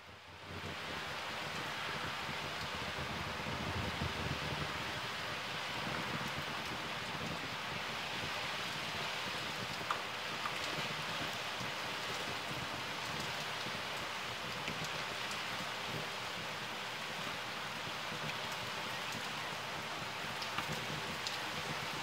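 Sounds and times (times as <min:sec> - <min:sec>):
heavy rain pouring: 0:00.1 - 0:22.0
raindrop ticks: 0:09.4 - 0:12.3, 0:18.1 - 0:22.0.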